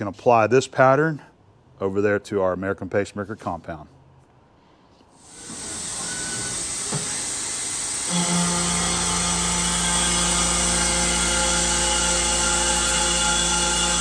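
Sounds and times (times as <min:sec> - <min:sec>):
steady hiss: 0:05.2 - 0:14.0
milling spindle whine: 0:05.3 - 0:14.0.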